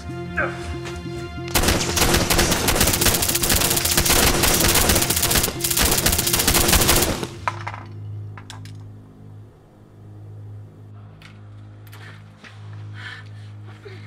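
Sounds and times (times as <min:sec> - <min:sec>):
film score music: 0:00.0 - 0:14.0
rapid pistol fire: 0:01.5 - 0:07.5.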